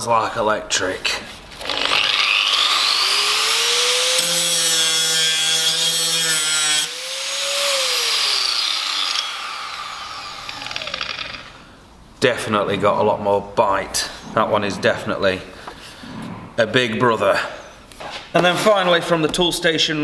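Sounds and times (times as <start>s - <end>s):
angle grinder whining: 1.6s - 11.8s.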